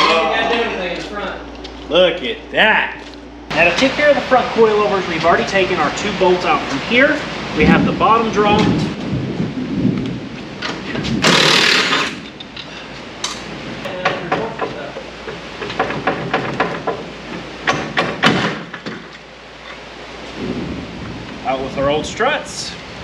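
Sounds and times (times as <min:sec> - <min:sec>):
loud burst of noise: 0:11.0 - 0:12.3
metal clanks and knocks: 0:13.3 - 0:19.2.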